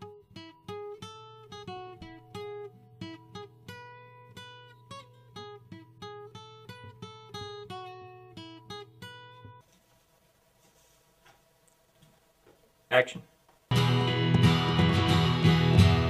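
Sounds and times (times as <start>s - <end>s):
acoustic guitar picking: 0.0s - 9.6s, 13.7s - 16.0s.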